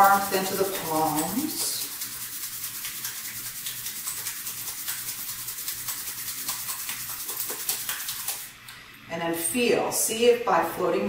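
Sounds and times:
hands rubbing together: 0.0s - 8.5s.

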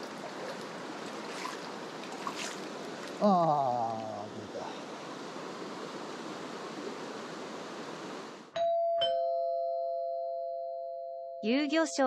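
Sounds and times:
stream water rushing: 0.0s - 8.5s.

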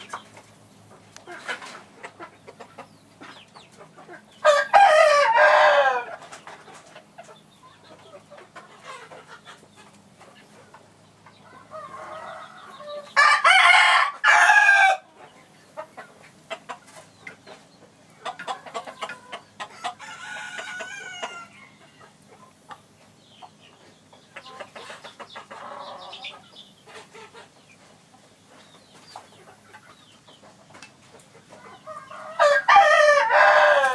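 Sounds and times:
chickens clucking: 0.0s - 33.9s
roosters crowing: 4.1s - 6.4s, 11.3s - 15.3s, 18.2s - 22.3s, 25.4s - 26.4s, 31.6s - 33.9s.

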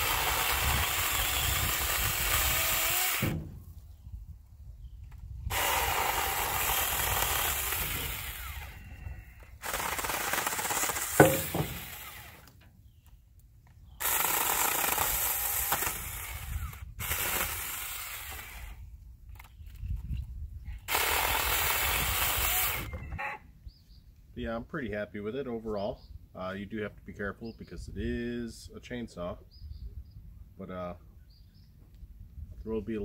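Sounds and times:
electric chainsaw cutting branches: 0.0s - 3.6s, 5.5s - 8.9s, 9.6s - 12.6s, 14.0s - 18.8s, 20.9s - 22.9s
sharp knock: 11.2s - 11.9s.

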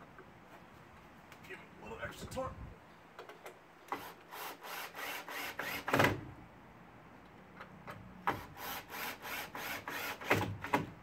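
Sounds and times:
cordless drill driving screw into wood: 3.9s - 6.3s, 8.2s - 10.9s.

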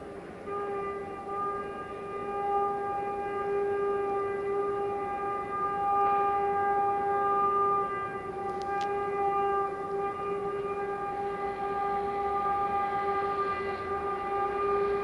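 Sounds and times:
locomotive air horn blast: 0.0s - 15.0s
faint clicks: 8.5s - 8.9s.

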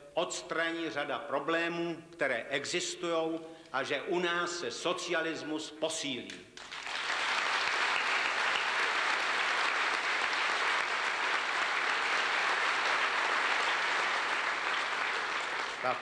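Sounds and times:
audience applauding: 6.6s - 16.0s.

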